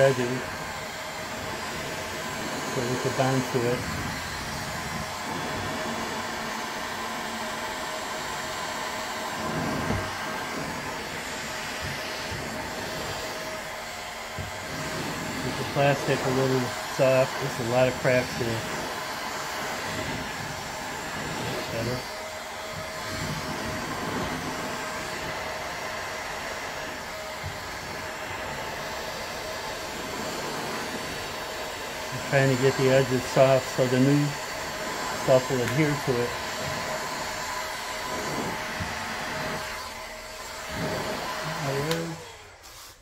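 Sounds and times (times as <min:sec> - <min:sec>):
heat gun blowing hiss: 0:00.0 - 0:43.0.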